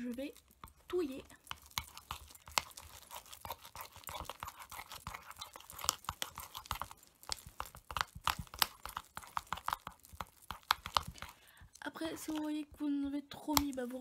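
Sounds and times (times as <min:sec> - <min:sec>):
spoon stirring paste in bowl: 0:00.0 - 0:14.0.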